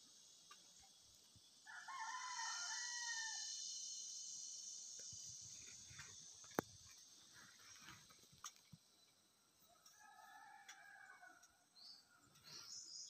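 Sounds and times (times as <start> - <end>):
high-pitched insect drone: 0.0 - 7.9
rooster crowing: 1.6 - 3.6, 9.7 - 11.6.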